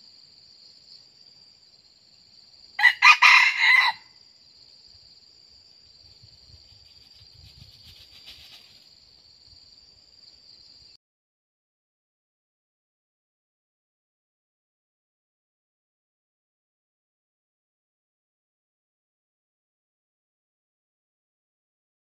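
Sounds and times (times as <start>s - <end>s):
rooster crowing: 2.8s - 4.2s.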